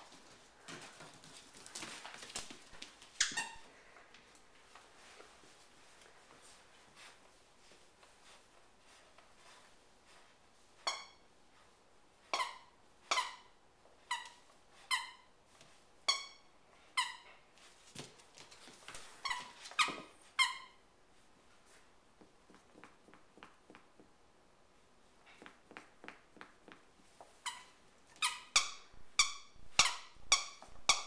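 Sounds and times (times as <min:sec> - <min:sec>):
squeaky toy squeaking: 0:10.8 - 0:11.2, 0:12.3 - 0:13.5, 0:14.1 - 0:15.3, 0:16.1 - 0:17.3, 0:19.2 - 0:20.8, 0:27.4 - 0:31.0.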